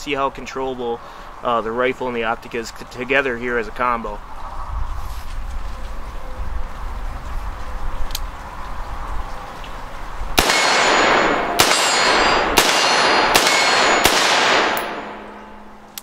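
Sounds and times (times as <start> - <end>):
rifle shots: 10.4 - 15.7
steel target clanging: 10.4 - 15.9.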